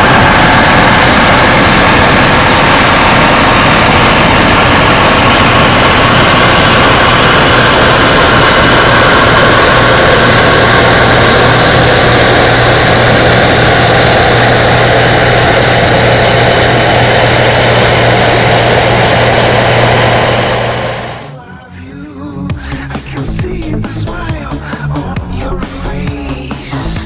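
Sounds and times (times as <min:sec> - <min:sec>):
combine harvester droning: 0:00.0 - 0:21.4
low hum: 0:00.0 - 0:21.5.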